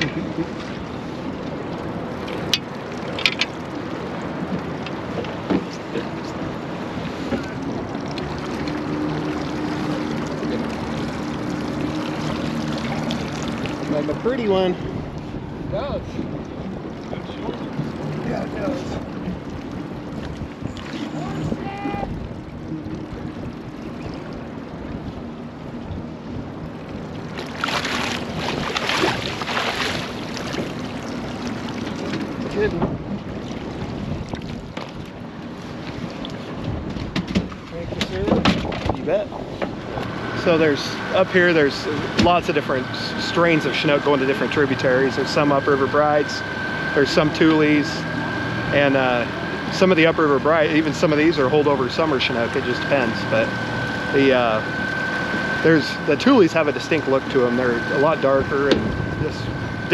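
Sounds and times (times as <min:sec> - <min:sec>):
low steady hum: 0:00.0 - 0:38.3
water around a boat: 0:00.0 - 0:59.9
wind: 0:00.0 - 0:59.9
fish splashing in water: 0:06.6 - 0:14.3, 0:26.8 - 0:36.9.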